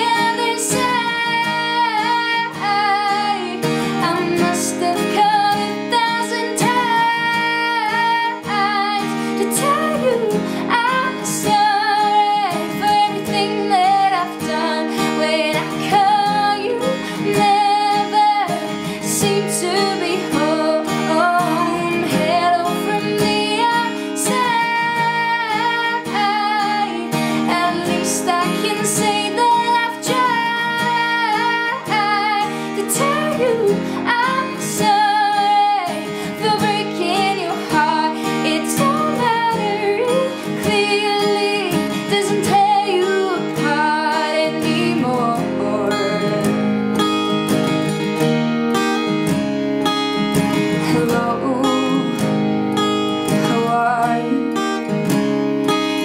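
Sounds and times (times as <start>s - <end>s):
woman singing: 0.0s - 48.2s, 50.3s - 55.0s
strummed acoustic guitar: 0.0s - 56.0s.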